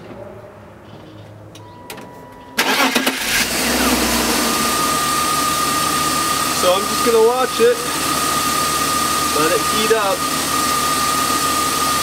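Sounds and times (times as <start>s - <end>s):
car engine starting and running: 2.6s - 12.0s.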